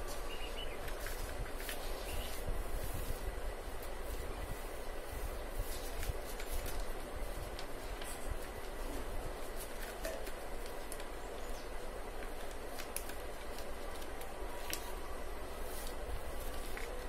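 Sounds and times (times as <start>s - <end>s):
low rumble and hiss: 0.0s - 17.0s
paper being folded: 0.0s - 17.0s.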